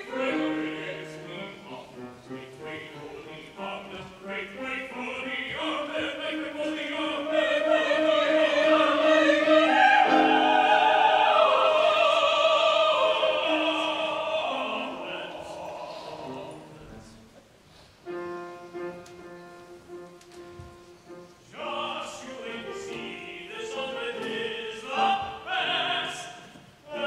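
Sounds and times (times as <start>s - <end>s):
operatic voices singing in harmony: 0.0s - 17.2s, 21.4s - 27.0s.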